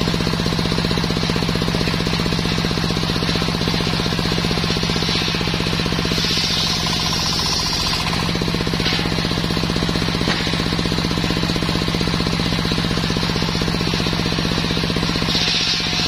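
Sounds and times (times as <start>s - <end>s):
engine pulsing rapidly: 0.0s - 16.0s
circular saw ripping log: 4.9s - 9.2s, 15.2s - 16.0s.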